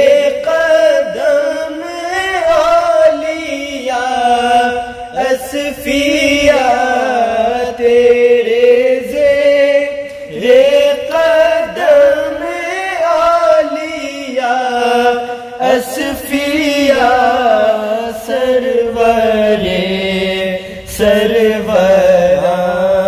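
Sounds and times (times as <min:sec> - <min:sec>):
two men singing: 0:00.0 - 0:23.0.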